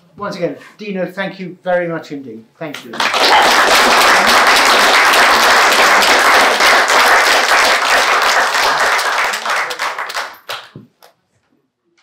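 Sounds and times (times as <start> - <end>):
audience applauding: 3.0 - 10.8.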